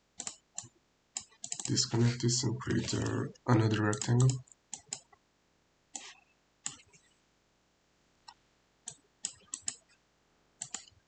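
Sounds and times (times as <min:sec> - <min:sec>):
mouse and keyboard clicks: 0:00.2 - 0:01.8, 0:02.8 - 0:05.1, 0:08.9 - 0:09.9, 0:10.6 - 0:11.0.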